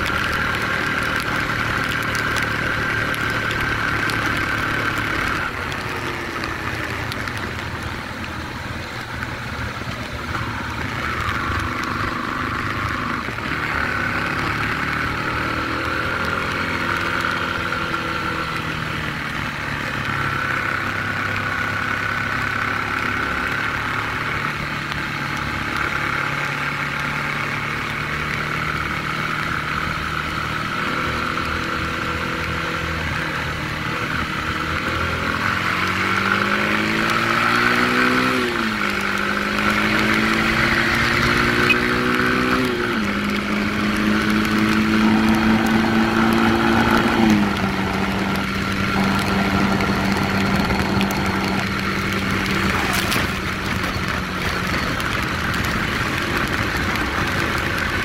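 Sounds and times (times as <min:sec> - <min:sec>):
motorcycle engine running: 0:00.0 - 0:58.0
steady rushing noise: 0:29.8 - 0:58.0.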